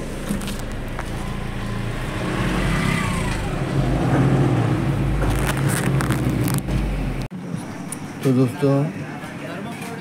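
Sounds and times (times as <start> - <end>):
diesel engine running: 0.0 - 7.3
road noise: 0.0 - 10.0.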